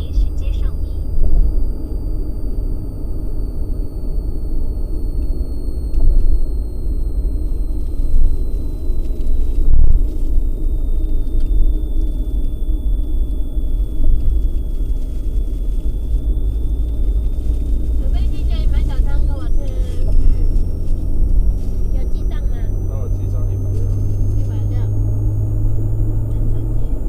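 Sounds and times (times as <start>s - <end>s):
car tyre and engine rumble: 0.0s - 27.0s
faint high whine: 0.0s - 27.0s.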